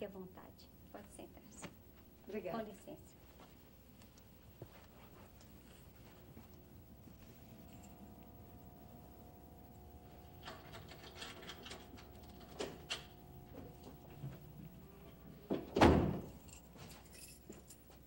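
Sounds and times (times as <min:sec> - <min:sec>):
door thudding: 0:15.5 - 0:16.4.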